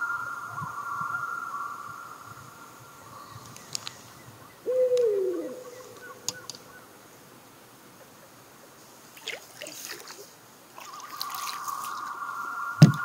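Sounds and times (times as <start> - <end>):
faint sharp clicks: 3.4 - 4.0, 6.0 - 6.7
hooting animal call: 4.5 - 6.9.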